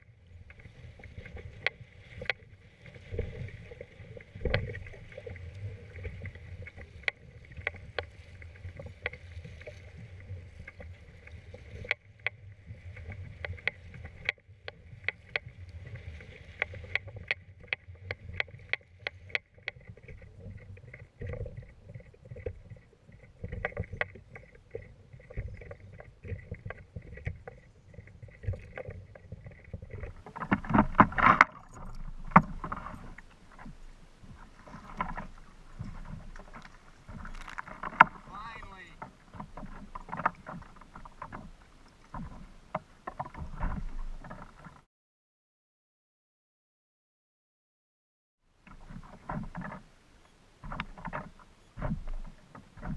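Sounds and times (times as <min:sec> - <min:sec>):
water slapping against kayak hull: 0:23.4 - 0:44.8, 0:50.6 - 0:52.9.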